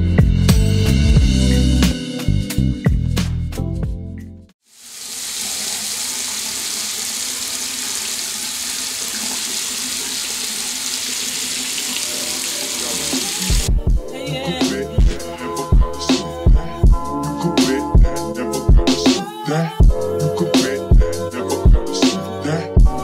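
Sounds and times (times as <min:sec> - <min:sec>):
music with a beat: 0:00.0 - 0:04.1, 0:13.2 - 0:23.0
tap water running: 0:04.6 - 0:13.7.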